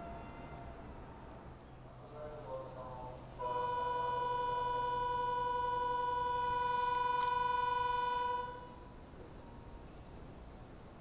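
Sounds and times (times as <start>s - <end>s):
electronic buzzer tone: 3.4s - 8.8s.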